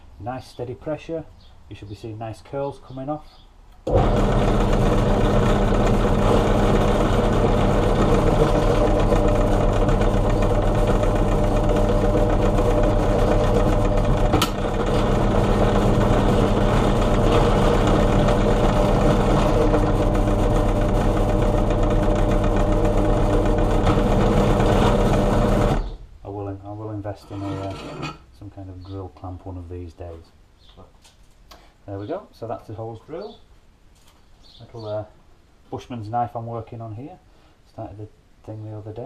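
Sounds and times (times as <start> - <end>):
drill press drilling steel: 3.9 - 25.9.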